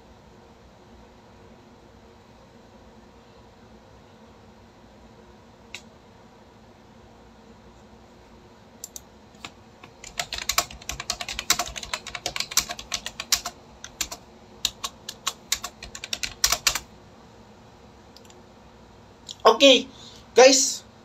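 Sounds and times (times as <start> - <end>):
keyboard typing clicks: 8.8 - 16.8.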